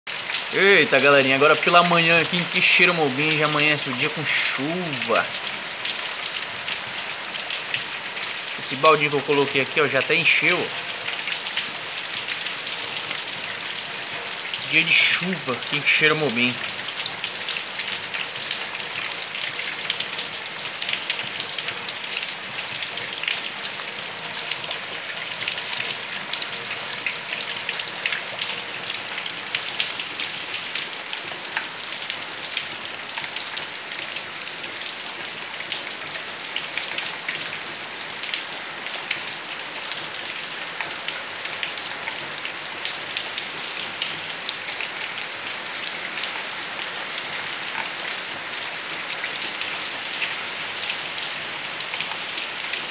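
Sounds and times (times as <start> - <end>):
steady rain falling: 0.1 - 52.9.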